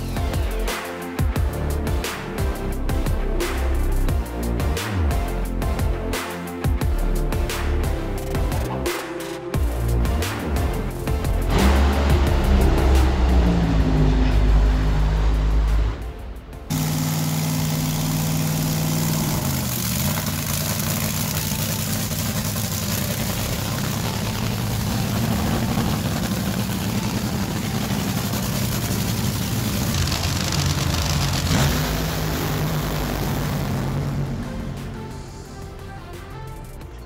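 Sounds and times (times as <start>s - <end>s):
drag racing engine roaring: 10.7s - 36.1s.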